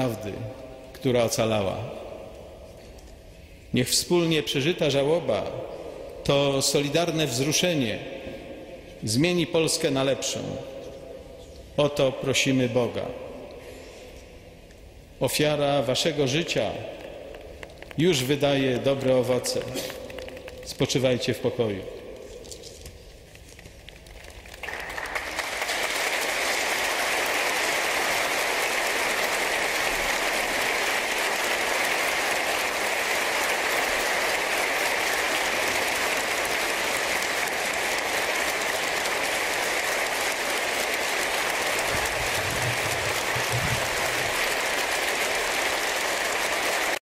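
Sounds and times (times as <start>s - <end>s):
crowd applause: 24.0s - 47.0s.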